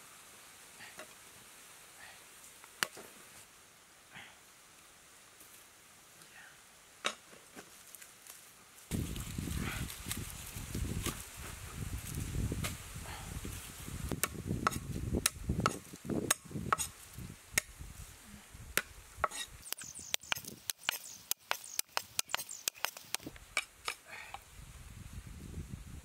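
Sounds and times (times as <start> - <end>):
cleaver chopping on wooden board: 14.2 - 16.9, 18.8 - 24.0.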